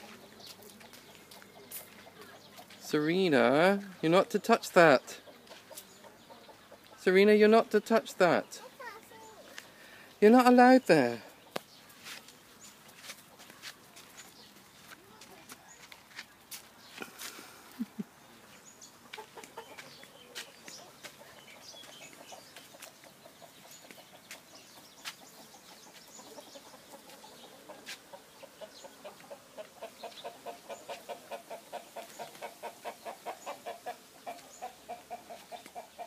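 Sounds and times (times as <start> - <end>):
chicken clucking: 0.0 - 9.5, 16.9 - 36.0.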